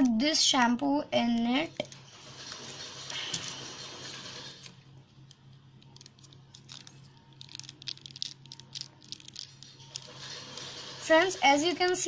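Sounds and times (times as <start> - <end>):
plastic sachet crinkling: 5.2 - 10.7.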